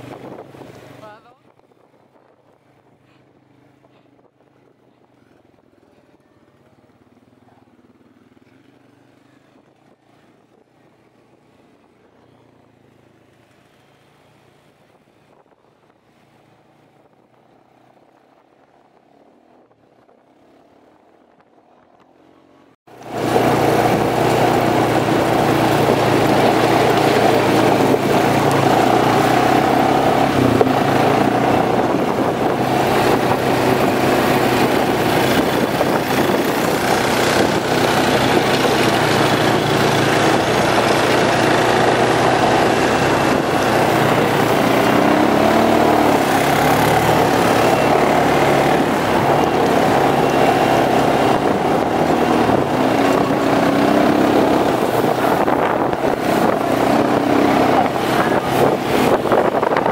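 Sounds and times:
quad engine running: 0:22.0 - 0:59.9.

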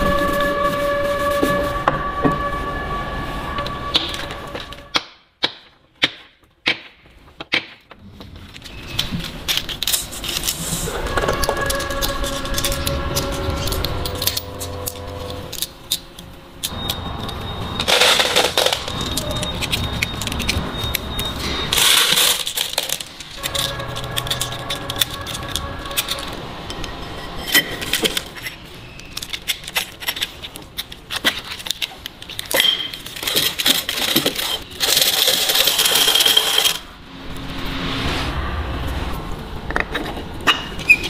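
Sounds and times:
steel parts clinking: 0:08.6 - 0:36.9.

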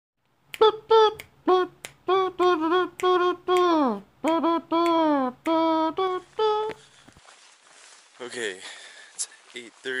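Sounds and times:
high voice singing unaccompanied: 0:00.5 - 0:06.8.

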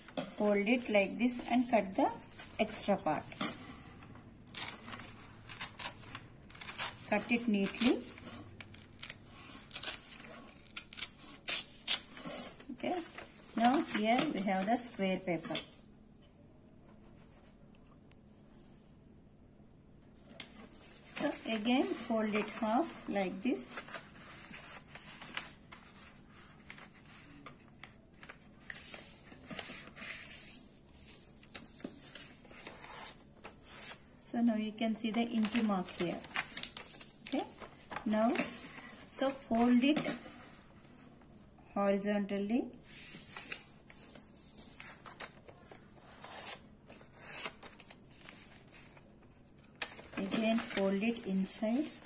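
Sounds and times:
paper being folded: 0:20.2 - 0:34.0, 0:35.0 - 0:41.0, 0:42.8 - 0:52.0.

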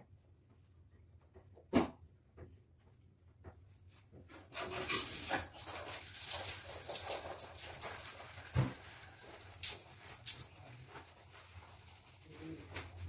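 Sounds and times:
hands scrubbing soapy hair: 0:04.4 - 0:13.0.

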